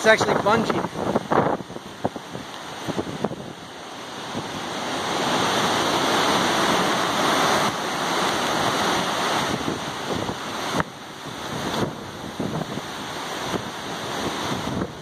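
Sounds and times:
wind buffeting microphone: 0.0 - 15.0
wind gusting through trees: 0.0 - 15.0.

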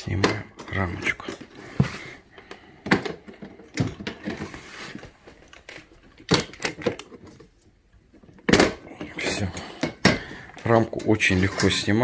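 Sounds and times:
plastic latches clicking and snapping: 5.5 - 7.6.

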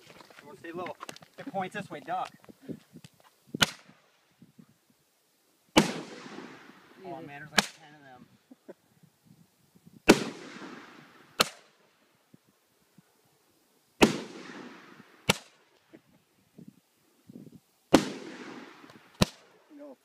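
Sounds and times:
fireworks bangs echoing: 5.8 - 7.0, 10.1 - 11.7, 14.0 - 15.6, 17.9 - 19.5.

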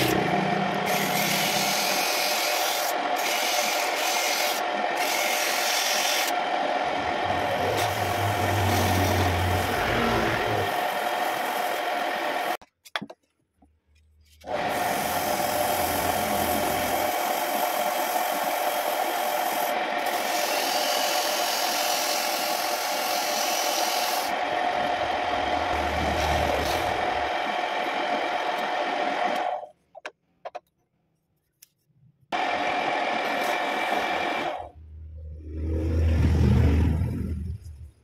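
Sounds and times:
wood lathe whine: 0.0 - 12.6, 14.4 - 29.7, 32.4 - 34.7.

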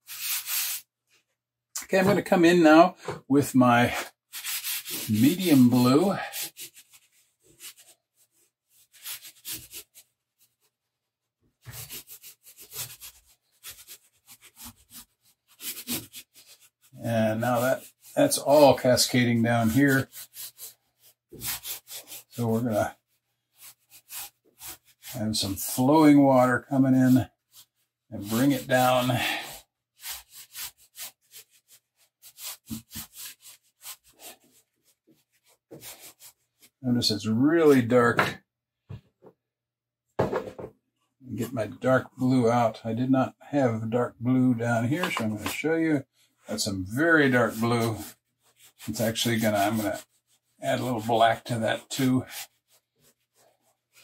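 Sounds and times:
chalk pastel rubbing on paper: 0.0 - 0.9, 3.9 - 10.7, 11.6 - 26.2, 26.8 - 36.8, 45.0 - 54.0.

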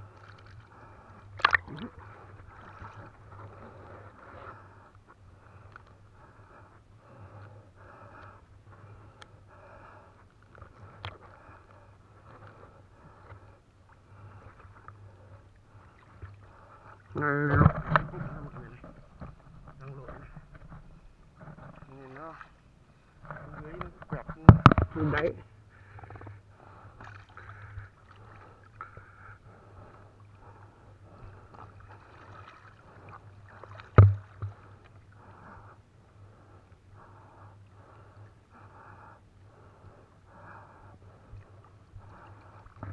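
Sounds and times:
river water sloshing: 0.0 - 5.6, 13.8 - 25.3, 26.5 - 38.8
low steady hum: 0.0 - 42.9.

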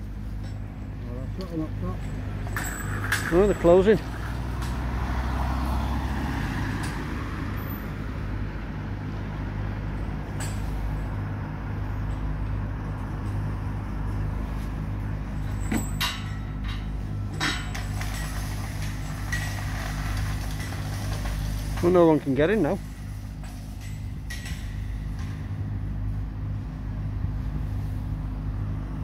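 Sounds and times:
engine humming: 0.0 - 29.0
metal fence gates clanking: 1.5 - 4.9, 15.3 - 25.7.

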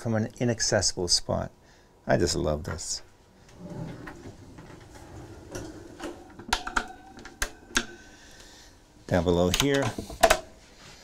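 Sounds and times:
wire basket rolling on runners: 3.6 - 8.4.

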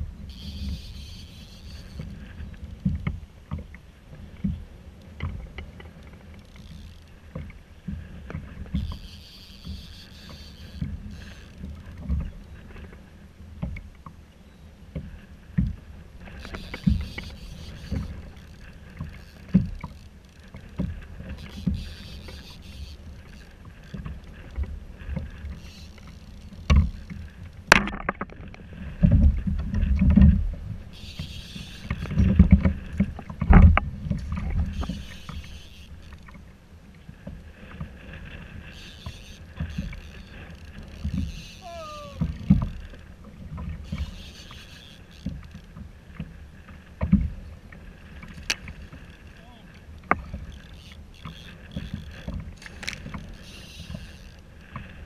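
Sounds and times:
wind on microphone: 37.1 - 55.0.

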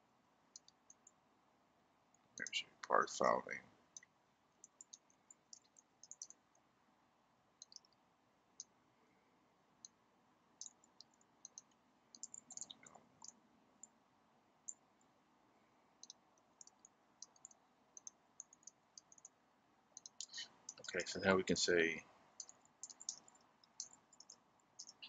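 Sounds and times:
faint keyboard keystrokes: 10.6 - 13.4, 22.4 - 25.0.

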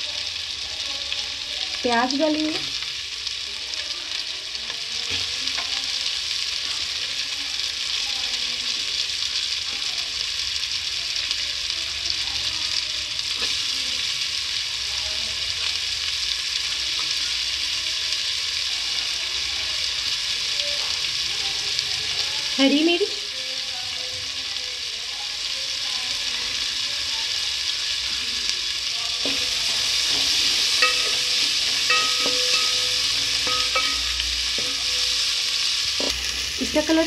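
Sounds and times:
onions sizzling in butter: 0.0 - 37.0
wooden spatula stirring: 29.2 - 36.1.

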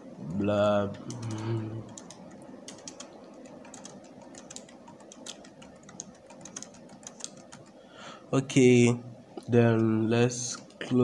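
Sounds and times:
computer keyboard typing: 0.9 - 7.8.

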